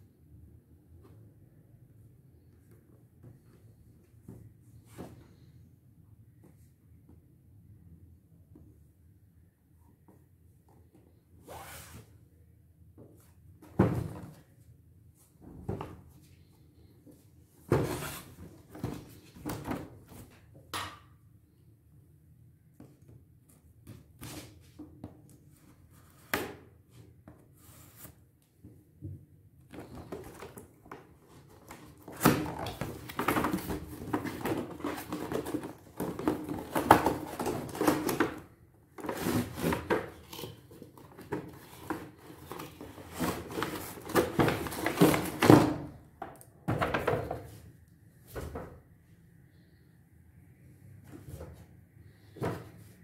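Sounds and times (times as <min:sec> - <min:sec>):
cardboard scraping and rustling: 0:29.8 - 0:38.4, 0:39.0 - 0:45.7.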